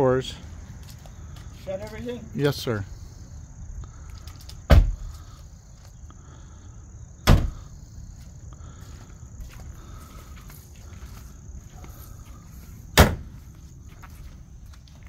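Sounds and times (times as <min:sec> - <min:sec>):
high insect trill: 0:00.0 - 0:15.0
car doors slamming: 0:04.7 - 0:05.0, 0:07.2 - 0:07.6, 0:13.0 - 0:13.3.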